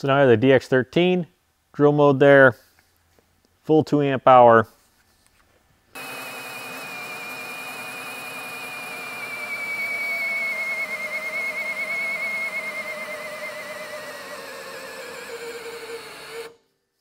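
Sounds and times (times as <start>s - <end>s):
cordless drill motor whine: 6.0s - 16.6s.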